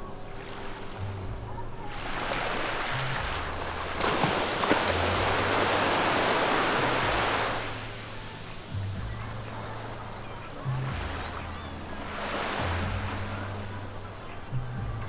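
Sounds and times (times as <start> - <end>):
wave breaking on beach: 1.8 - 11.4.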